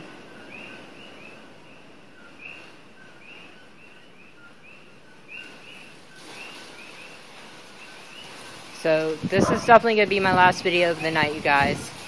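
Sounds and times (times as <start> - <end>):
wind rushing: 8.8 - 12.0.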